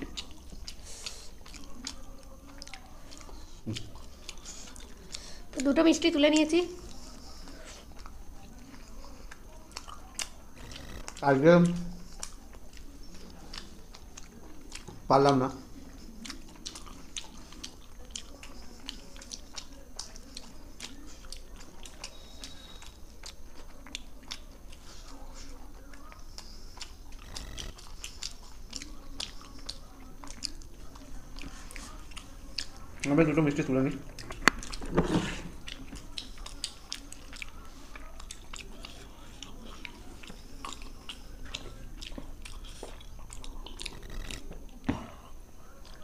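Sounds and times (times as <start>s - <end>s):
wet chewing mouth clicks: 0.0s - 5.7s, 6.3s - 46.0s.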